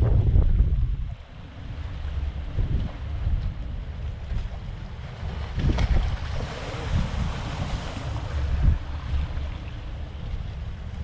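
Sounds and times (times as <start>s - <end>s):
wind buffeting microphone: 0.0s - 11.0s
waves splashing against concrete: 4.2s - 11.0s.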